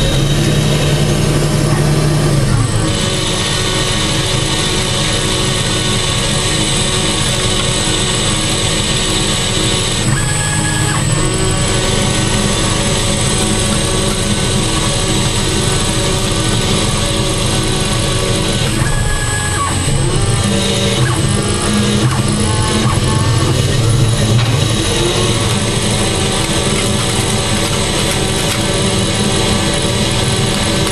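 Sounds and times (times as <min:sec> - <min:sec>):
lathe cutting steel whine: 0:00.0 - 0:30.9.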